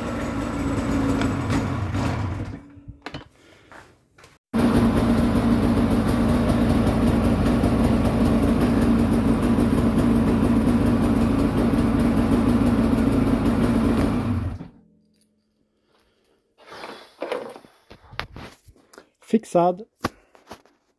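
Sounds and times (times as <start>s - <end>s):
snowmobile engine idling: 0.0s - 2.5s, 4.6s - 14.7s.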